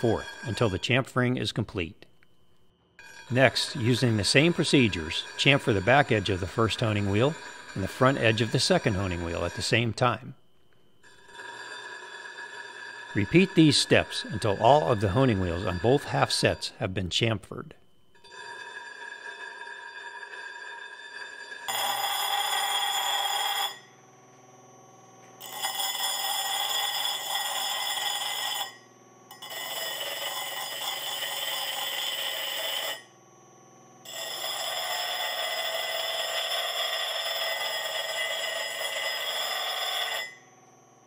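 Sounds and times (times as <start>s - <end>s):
honing machine running: 0.0s - 2.6s, 3.3s - 11.4s, 13.1s - 17.4s
dressing stick scraping wheels: 3.0s - 10.0s.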